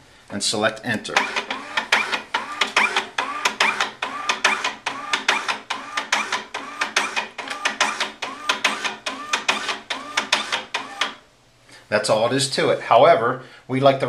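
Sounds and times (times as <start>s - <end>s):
printer motor pulsing whir: 1.2s - 11.2s.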